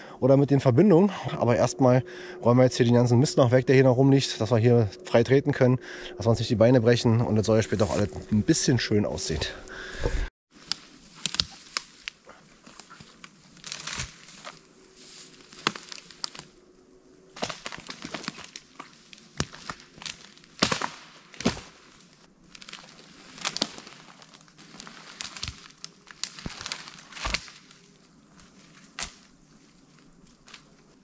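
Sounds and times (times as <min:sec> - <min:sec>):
dry leaves and twigs rustling: 0:07.5 - 0:08.6, 0:10.5 - 0:31.0
twigs snapping: 0:10.5 - 0:16.6, 0:17.4 - 0:31.0.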